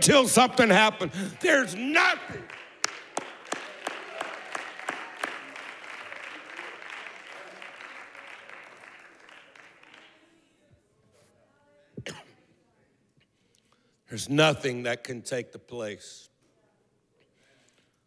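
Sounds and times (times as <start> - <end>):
congregation applauding: 0.0 - 10.4.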